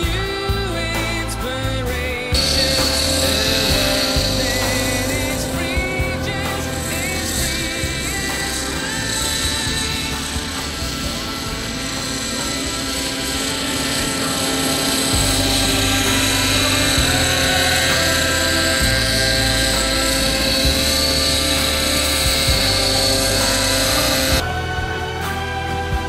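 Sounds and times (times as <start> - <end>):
model helicopter engine whine: 0.0 - 26.0
rotor blade noise: 0.0 - 26.0.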